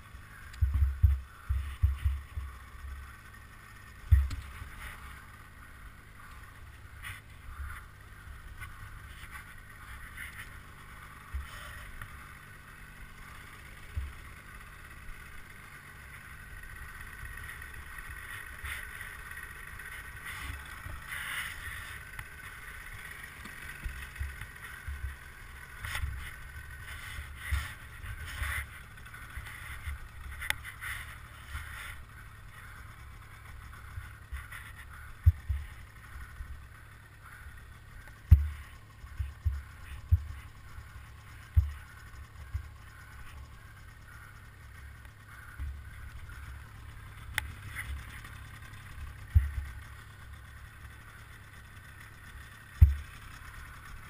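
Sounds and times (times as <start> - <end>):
dull thumps: 4.0 - 4.5, 38.3 - 40.4
rustling in snow: 18.0 - 35.2.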